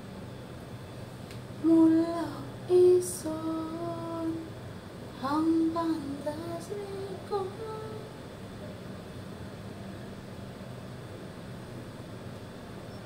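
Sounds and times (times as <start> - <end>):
woman singing without words: 1.6 - 8.2.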